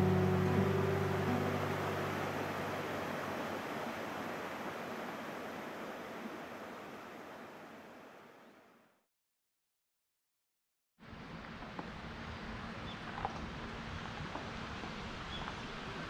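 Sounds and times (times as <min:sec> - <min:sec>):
acoustic guitar low notes: 0:00.0 - 0:03.1
steady rushing noise: 0:00.0 - 0:06.2.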